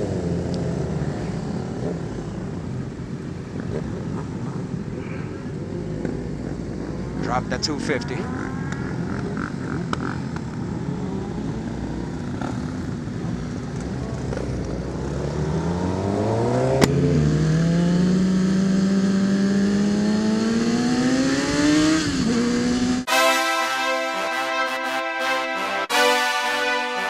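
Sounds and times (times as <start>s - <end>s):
motorcycle engine accelerating: 0.0s - 23.2s
music: 23.1s - 27.0s.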